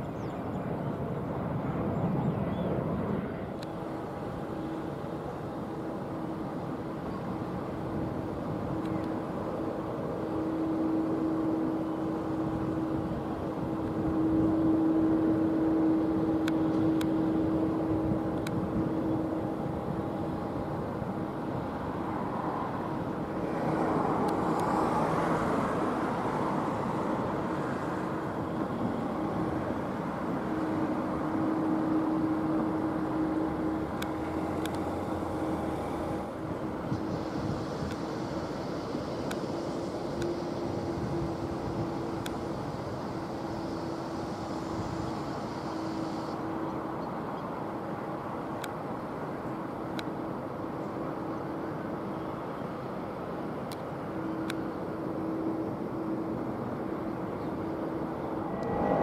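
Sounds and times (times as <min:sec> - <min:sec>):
jet engines droning: 0:00.0 - 0:59.0.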